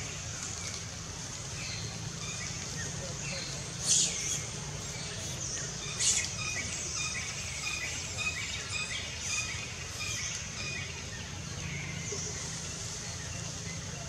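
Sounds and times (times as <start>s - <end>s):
birds chirping: 1.4s - 14.0s.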